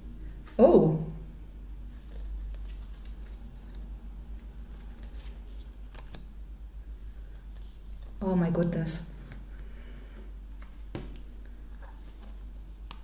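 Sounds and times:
steady low hum: 0.0 - 13.0
paper and cardboard rustling: 1.9 - 6.2, 10.7 - 13.0.

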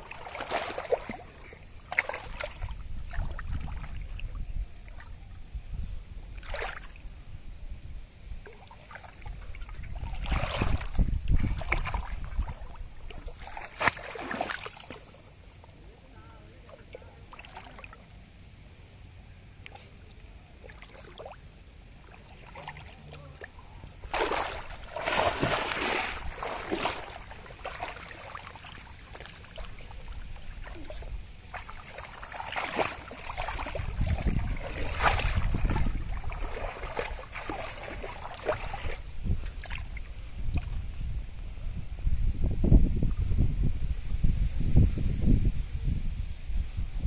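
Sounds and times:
muddy water splashing: 0.0 - 5.3, 6.3 - 7.1, 8.4 - 15.8, 16.4 - 18.2, 19.6 - 40.9.

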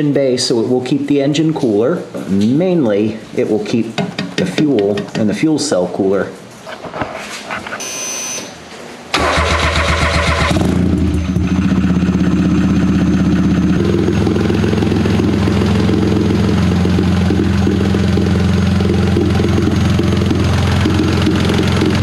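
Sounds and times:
engine starting and idling: 9.1 - 22.0.

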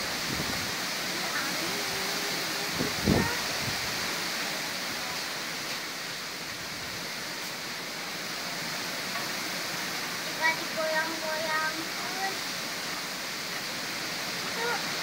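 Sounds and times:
wind buffeting microphone: 0.0 - 0.8, 2.6 - 4.1
gale blowing through trees: 0.0 - 15.0.

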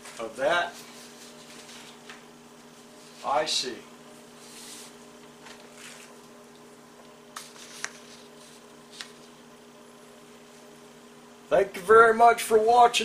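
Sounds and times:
paper rustling: 0.0 - 2.2, 4.4 - 6.2, 7.4 - 9.4
faint electrical hum: 0.0 - 13.0
paper crinkles or taps: 7.3 - 9.3.

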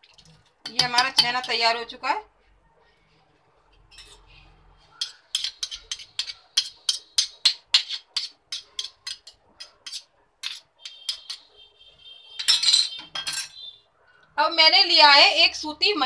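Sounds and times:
metal spoon clinking against pot: 0.6 - 1.6, 5.0 - 11.5, 12.3 - 13.6.

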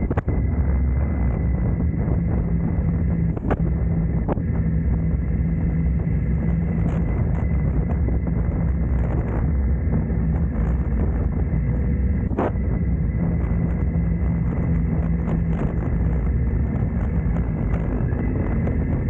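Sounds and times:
wind noise on microphone: 0.0 - 19.0.

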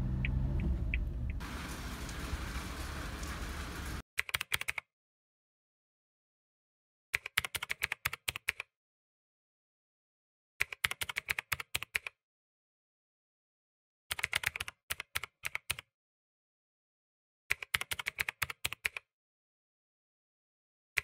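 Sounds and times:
keyboard key clicks: 4.2 - 4.8, 17.5 - 19.0.

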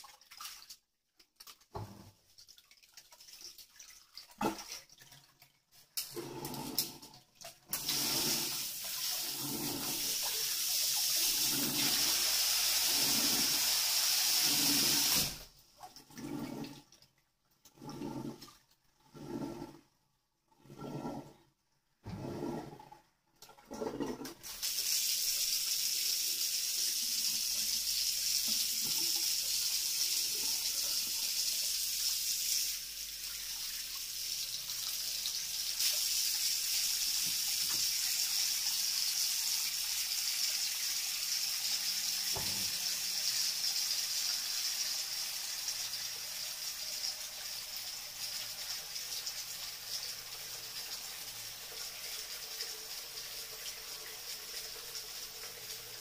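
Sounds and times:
tap water splashing into sink: 0.0 - 9.3, 14.3 - 16.0, 26.7 - 31.6, 34.7 - 44.5.

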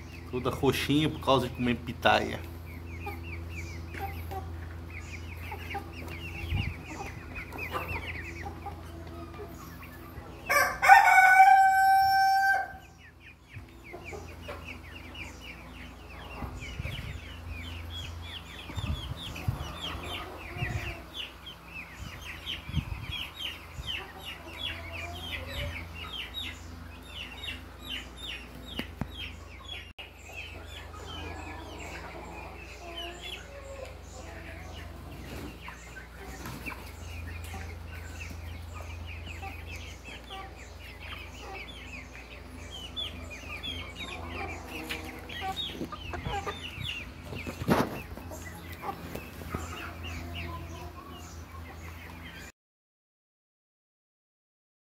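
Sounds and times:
chickens clucking: 0.0 - 52.5
rooster crowing: 10.5 - 12.9.

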